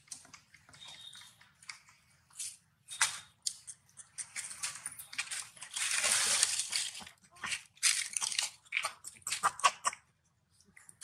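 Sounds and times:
dry leaves rustling and crackling: 5.1s - 7.1s.

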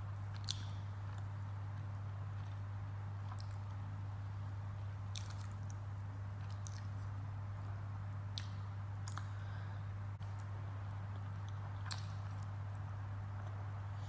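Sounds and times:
steady low hum: 0.0s - 14.0s
chewing: 0.3s - 3.8s, 5.0s - 7.2s, 8.3s - 9.6s, 11.1s - 12.6s
wet squelches of food by hand: 5.0s - 7.2s, 10.2s - 12.6s.

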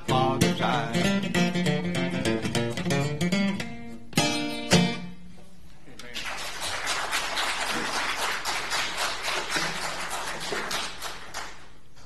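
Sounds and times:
crowd applauding: 6.1s - 11.9s.

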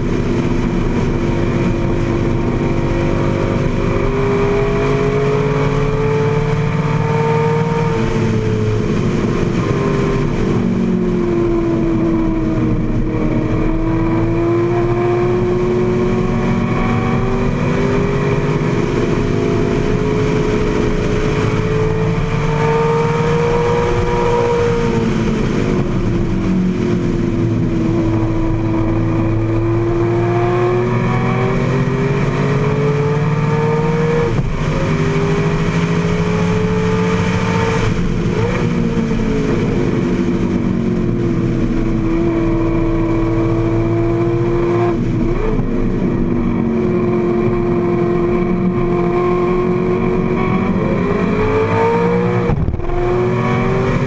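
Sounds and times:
car engine at race pace: 0.0s - 54.0s.

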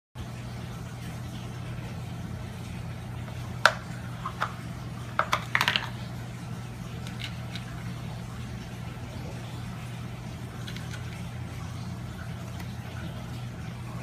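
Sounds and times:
steady low hum: 0.2s - 14.0s
plastic cones knocking and rattling: 3.6s - 6.0s.

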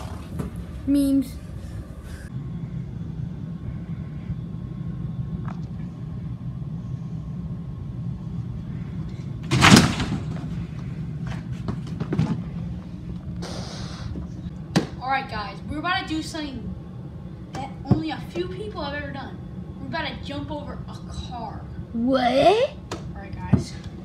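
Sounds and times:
steady low rumble: 0.0s - 24.0s.

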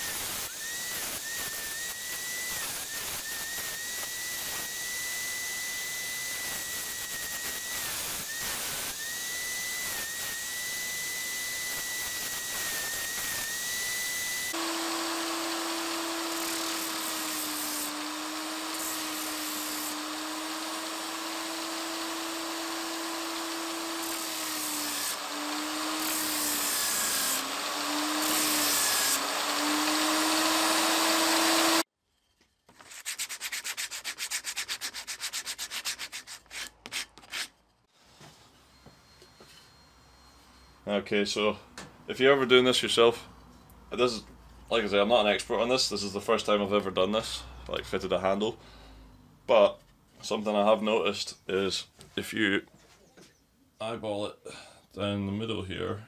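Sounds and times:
grinder sanding wood: 0.0s - 31.8s, 32.9s - 37.5s.

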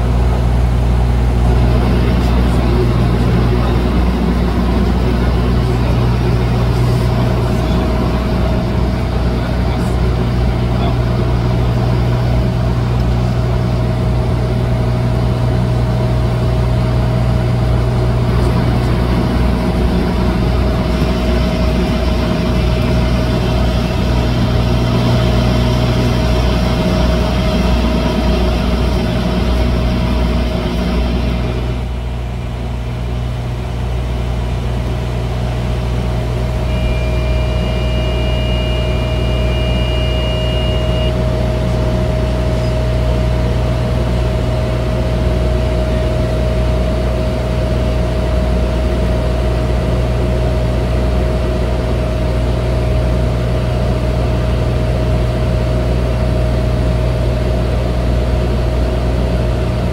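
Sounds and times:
turboprop engines droning in flight: 0.0s - 59.9s
faint high steady tones: 36.6s - 42.8s.

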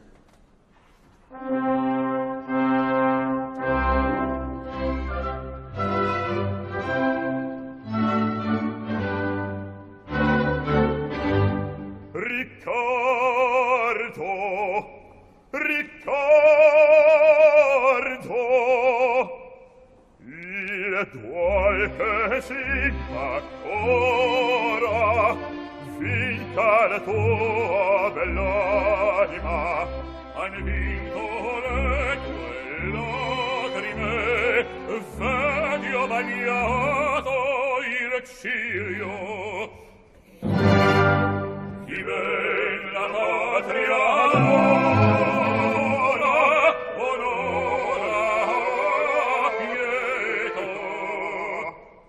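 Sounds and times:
orchestra playing: 1.3s - 14.5s, 21.2s - 38.0s, 40.3s - 51.6s
male opera singer singing: 12.1s - 40.0s, 41.8s - 52.0s.

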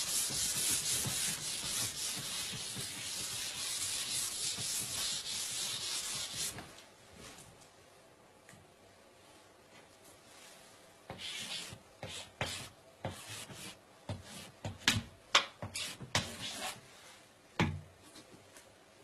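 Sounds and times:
chalk scratching on blackboard: 0.0s - 6.6s, 11.1s - 14.5s, 15.6s - 16.8s.

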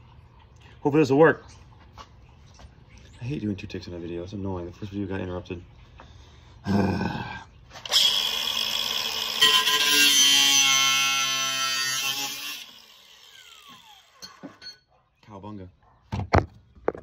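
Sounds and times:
grinder winding down whine: 7.9s - 14.2s
angle grinder cutting steel: 7.9s - 14.4s.

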